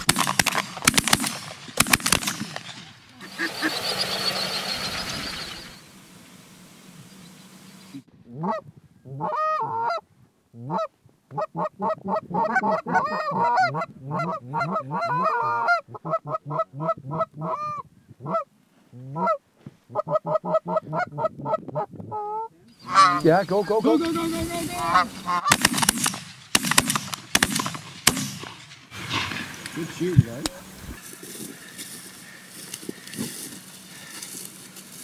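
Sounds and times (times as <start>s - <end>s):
geese honking: 3.1s - 5.9s, 7.0s - 10.0s, 10.6s - 18.5s, 19.1s - 25.6s, 30.6s - 34.8s.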